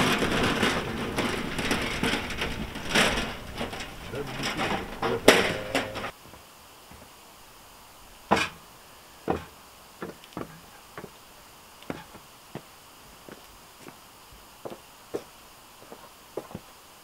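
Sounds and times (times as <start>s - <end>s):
rubber boot footsteps on wood: 6.2s - 7.1s, 9.3s - 11.2s, 11.8s - 14.0s, 14.6s - 16.7s.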